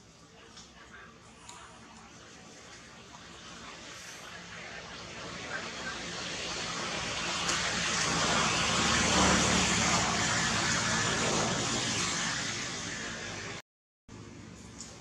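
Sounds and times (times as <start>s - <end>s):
vehicle passing by: 5.0s - 13.6s.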